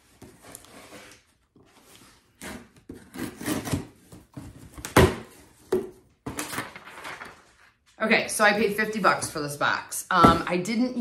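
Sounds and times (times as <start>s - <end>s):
knife slitting packing tape: 2.4s - 4.0s.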